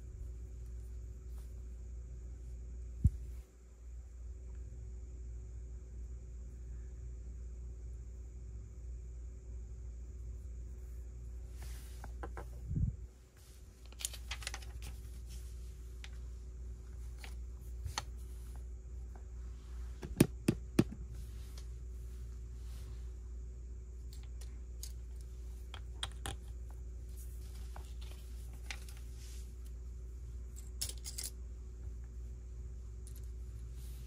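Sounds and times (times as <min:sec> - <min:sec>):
plastic pieces clicking and rattling: 0:13.8 - 0:14.9, 0:30.6 - 0:31.4.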